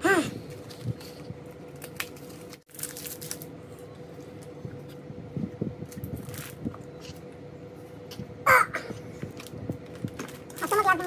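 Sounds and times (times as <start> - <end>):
foil wrapper crinkling: 0.4 - 3.6, 5.9 - 7.2, 9.3 - 11.0.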